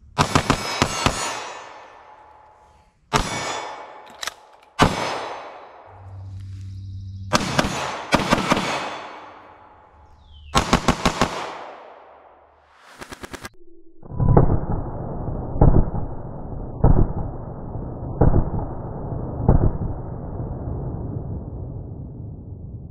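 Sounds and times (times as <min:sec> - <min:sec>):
pistol shots with ringing echo: 0:00.1 - 0:02.5, 0:03.1 - 0:05.9, 0:07.3 - 0:12.4.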